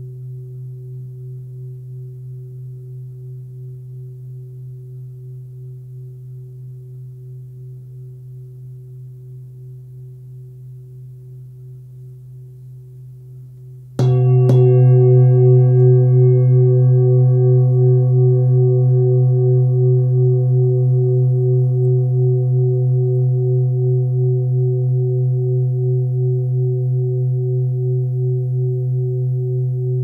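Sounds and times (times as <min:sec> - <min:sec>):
singing bowl ringing: 0:13.7 - 0:30.0
singing bowl being struck: 0:14.0 - 0:25.0.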